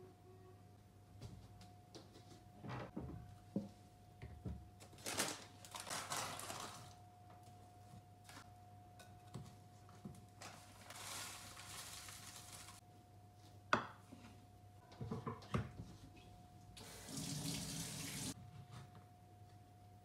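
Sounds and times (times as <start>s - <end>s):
faint steady hum: 0.0s - 17.2s
paper packet crinkling: 4.8s - 7.0s, 10.4s - 12.8s.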